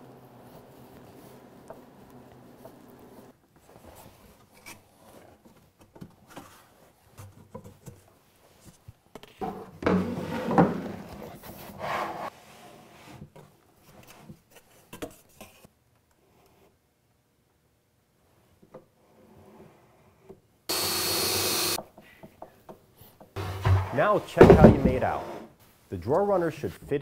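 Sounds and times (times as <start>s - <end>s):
wood scraping against wood: 23.4s - 25.6s.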